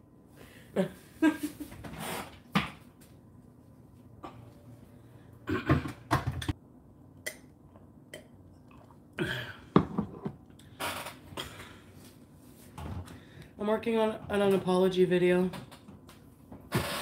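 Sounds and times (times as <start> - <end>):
knocks and rustles of handling things: 9.8 - 13.2.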